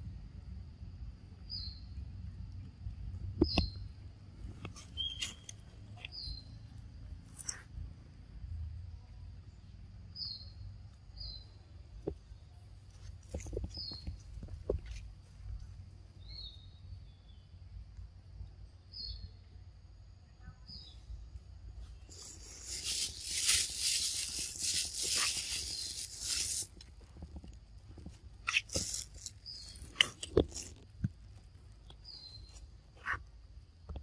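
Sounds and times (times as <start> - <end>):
faint high insect drone: 0.0 - 3.2, 3.8 - 13.1, 14.1 - 29.8
rustling and crunching dry leaves: 21.9 - 32.7
sharp clicks and crackles: 22.1 - 32.1.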